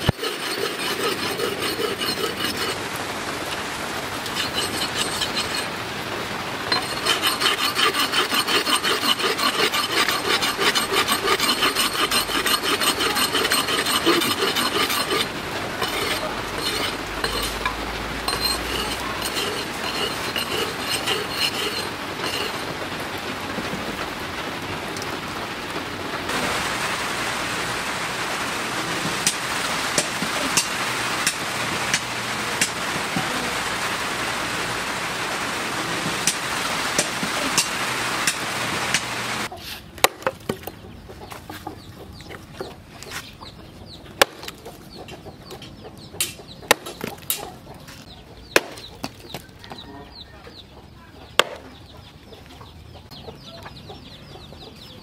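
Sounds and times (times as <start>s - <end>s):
steady hiss: 26.3s - 39.5s.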